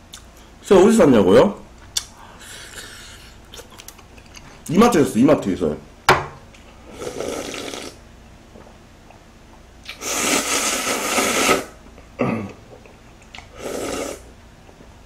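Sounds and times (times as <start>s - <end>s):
person slurping broth: 6.8s - 8.0s, 9.9s - 11.8s, 13.4s - 14.3s.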